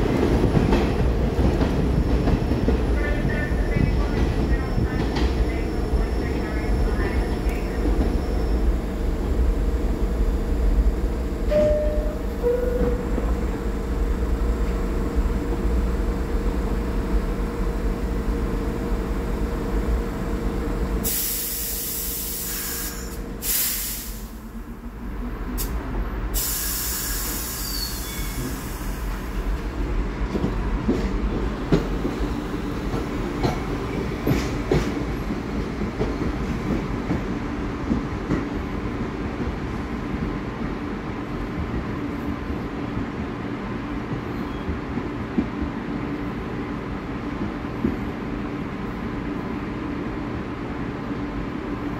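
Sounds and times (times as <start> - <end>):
subway train hum: 0.0 - 51.9
air brakes hissing: 21.0 - 24.4, 25.6 - 29.3
train clicking over rail joints: 29.2 - 38.7.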